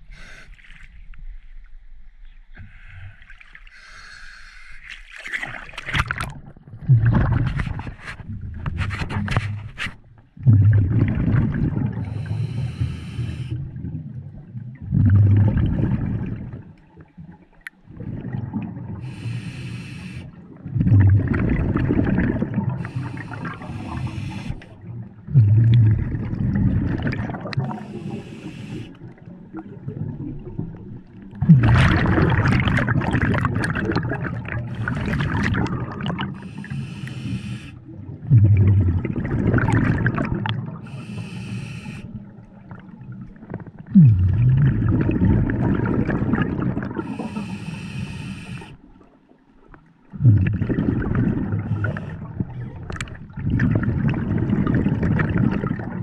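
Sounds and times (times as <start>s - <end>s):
bubbling exhale: 10.4s - 14.1s, 14.8s - 16.6s, 17.9s - 30.8s, 31.4s - 42.8s, 43.4s - 48.8s, 50.2s - 56.0s
hissing regulator inhale: 12.1s - 13.6s, 19.0s - 20.4s, 22.8s - 24.7s, 27.7s - 29.0s, 36.4s - 37.8s, 40.8s - 42.2s, 47.0s - 48.8s, 51.7s - 52.2s.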